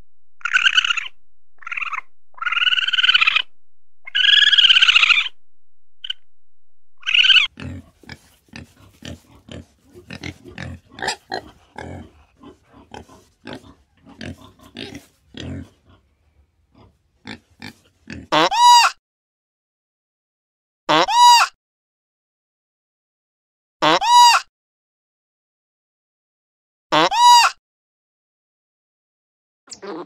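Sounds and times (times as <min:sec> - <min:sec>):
animal high calls: 0:00.4 - 0:05.4, 0:07.0 - 0:07.5
animal rising and falling call: 0:00.4 - 0:05.4, 0:07.0 - 0:07.5
animal grunting: 0:07.0 - 0:16.1.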